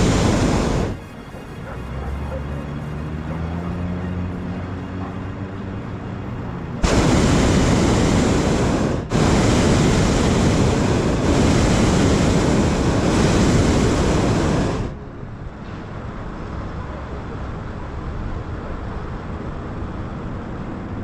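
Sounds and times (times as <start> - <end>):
propane burner firing: 0.0 - 1.0, 6.8 - 15.0.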